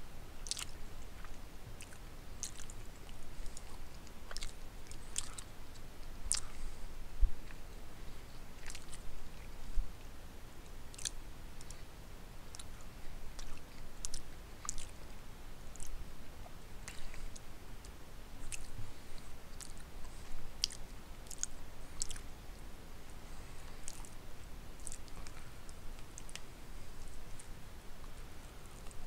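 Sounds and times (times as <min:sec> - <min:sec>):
person chewing with wet mouth clicks: 0:00.4 - 0:06.7, 0:08.6 - 0:09.0, 0:10.9 - 0:11.9, 0:12.5 - 0:15.0, 0:15.7 - 0:18.8, 0:19.5 - 0:19.9, 0:20.6 - 0:22.3, 0:23.8 - 0:24.2, 0:24.8 - 0:28.2.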